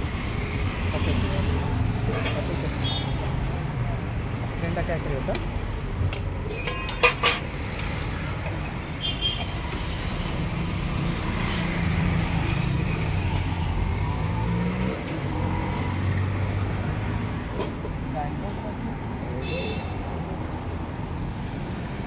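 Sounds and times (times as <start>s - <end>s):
street traffic: 0.0s - 22.0s
ladle clinking against pots: 6.4s - 7.9s.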